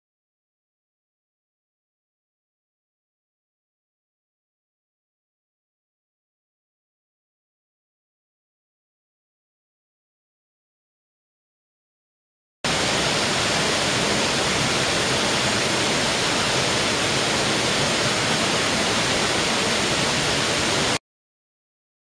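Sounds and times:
waterfall onto rocks: 12.7 - 21.0.

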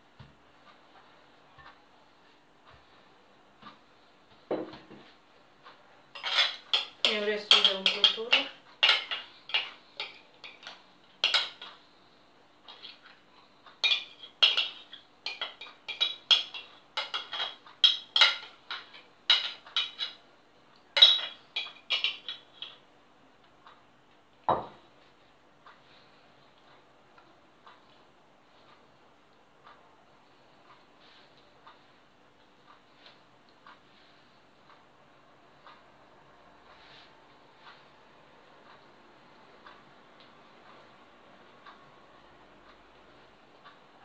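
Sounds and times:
spoon scraping ceramic bowl: 6.2 - 11.6.

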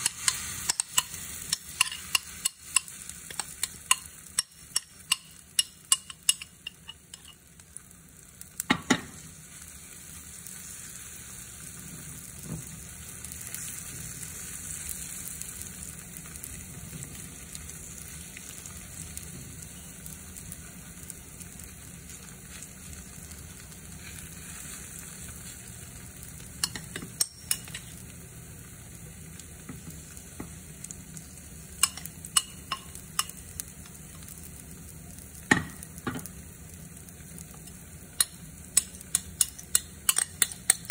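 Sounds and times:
metal spoon scraping pan: 0.0 - 7.4
batter sizzling in frying pan: 0.0 - 40.9.

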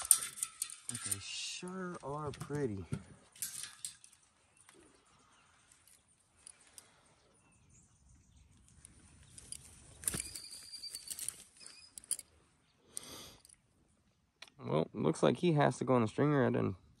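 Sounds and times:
pliers and net clicking: 0.0 - 1.2, 3.4 - 4.8, 9.4 - 12.3
quiet rustling: 8.5 - 12.6.

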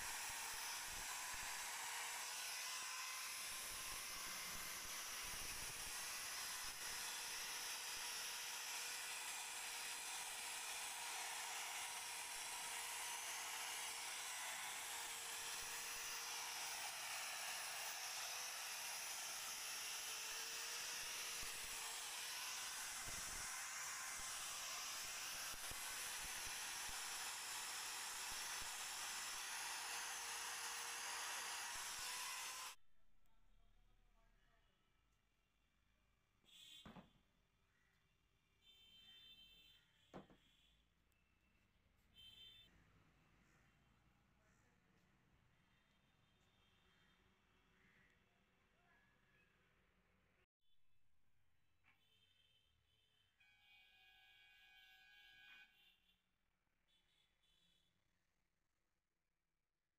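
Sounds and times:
electric drill motor whine: 0.0 - 32.8.

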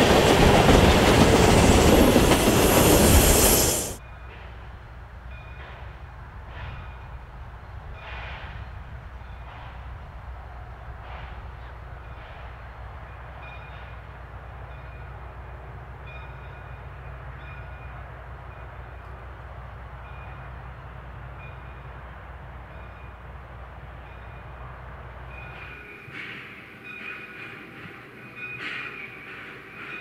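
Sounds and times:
steam locomotive venting steam: 0.0 - 4.0.

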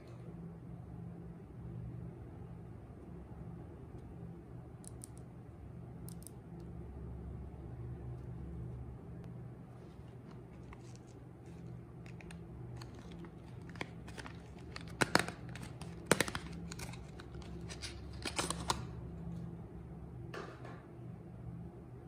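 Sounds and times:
cardboard box crinkling and clicking: 10.3 - 18.8.

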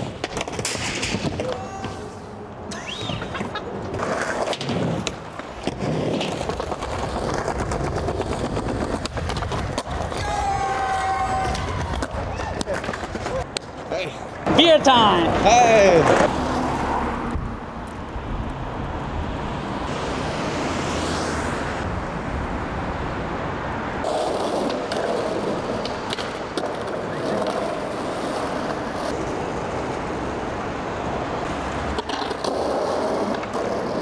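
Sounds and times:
skateboard clacks: 0.0 - 2.0, 2.7 - 14.4, 24.0 - 30.2, 31.8 - 34.0
skateboard wheels rumbling: 0.0 - 34.0.

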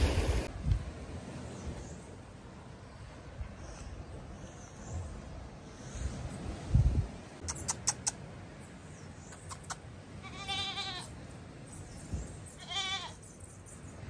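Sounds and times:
goat bleating: 10.2 - 11.2, 12.6 - 13.2.

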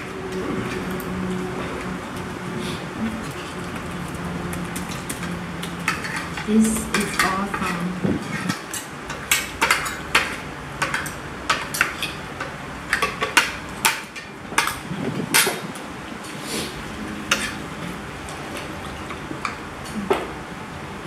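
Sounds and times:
cutlery clinking on plates: 5.8 - 15.8, 17.3 - 17.6.

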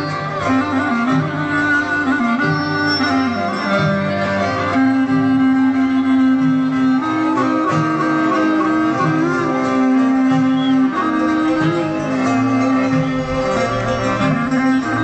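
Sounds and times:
folk dance music: 0.0 - 15.0.

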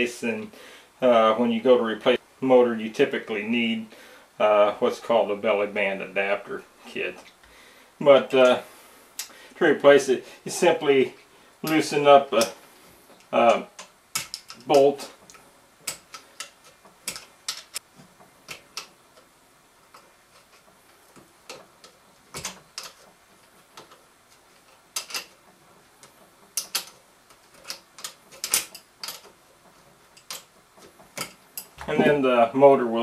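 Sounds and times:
hand tool clicking on bolt: 13.2 - 17.8, 25.0 - 25.4, 26.0 - 29.3.

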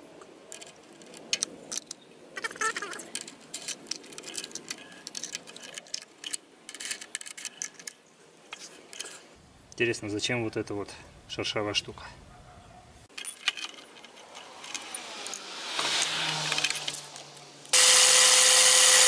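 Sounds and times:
small metal clicks and rattles: 0.2 - 9.3, 13.1 - 15.4, 16.0 - 17.8.

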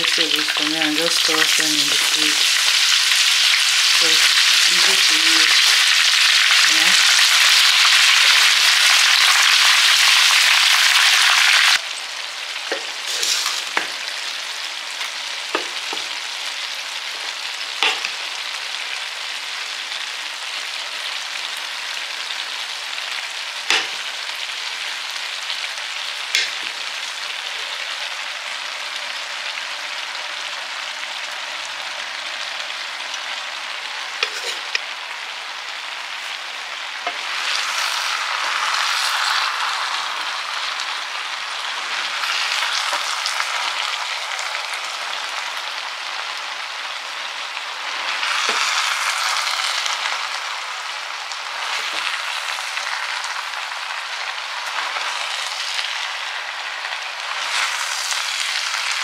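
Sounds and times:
chicken frying in a wok: 0.0 - 59.0
vegetables and rice sizzling: 0.0 - 59.0
wooden spoon knocking wok: 15.5 - 16.1, 17.8 - 18.2.

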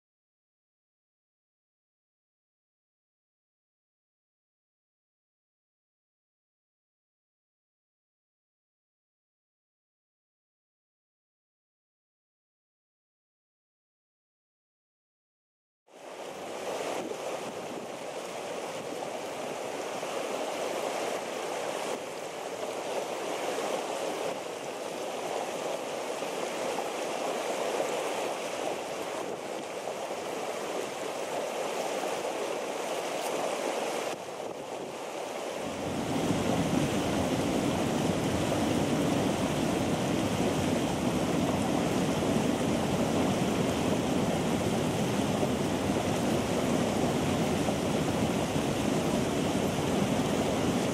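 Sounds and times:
hot spring water bubbling: 16.1 - 50.9.

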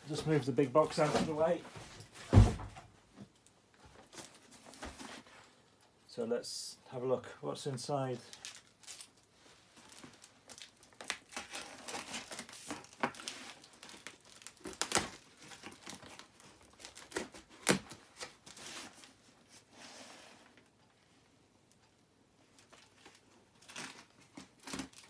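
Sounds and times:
cardboard and packaging crinkling: 8.0 - 19.7, 22.5 - 25.0
packing tape tearing: 8.3 - 9.3, 9.9 - 19.0, 22.6 - 25.0.

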